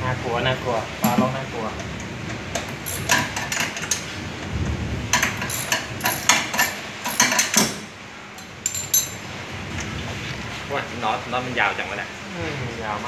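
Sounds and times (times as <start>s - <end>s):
metallic clinks of hand tool: 2.9s - 4.0s, 5.2s - 7.8s.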